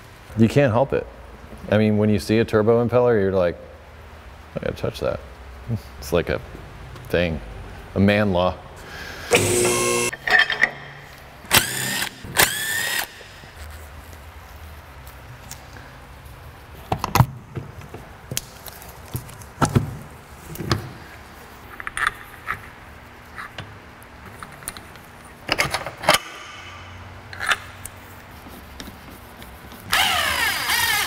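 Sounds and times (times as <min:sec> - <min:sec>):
metal tools clinking and clanking: 0:10.2 - 0:10.8.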